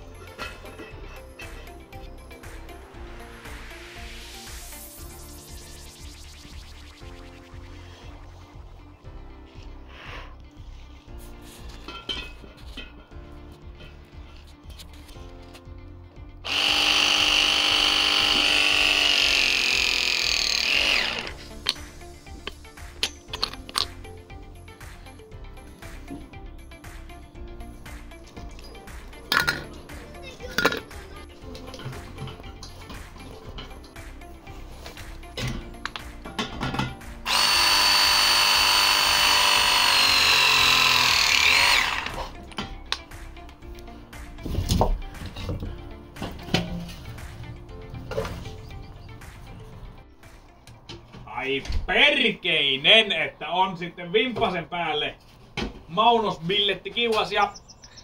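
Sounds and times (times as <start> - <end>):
background music: 0.0 - 57.9
pipe press tool motor: 16.4 - 21.4, 37.2 - 42.3.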